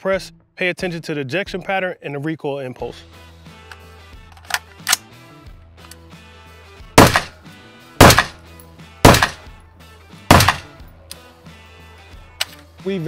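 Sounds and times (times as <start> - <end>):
rifle shots with echo: 7.0 - 7.4, 8.0 - 8.4, 9.0 - 9.5, 10.3 - 10.8.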